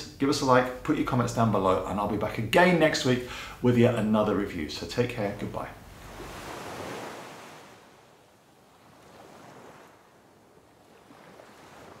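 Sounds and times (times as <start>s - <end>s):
ocean waves surging: 5.8s - 12.0s.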